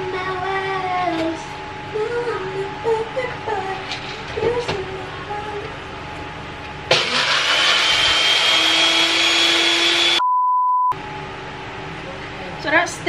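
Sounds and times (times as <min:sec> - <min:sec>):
blender grinding snacks: 0:06.9 - 0:10.2
short beep tone: 0:10.2 - 0:11.0.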